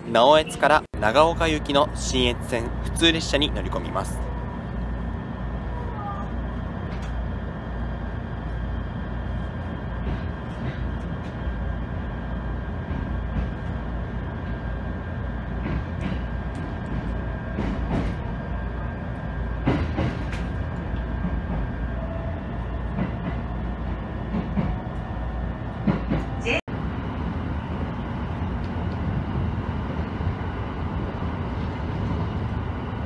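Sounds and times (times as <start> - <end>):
train running rumble: 0.0 - 33.0
wheels clacking on rails: 9.3 - 22.2, 22.8 - 26.6.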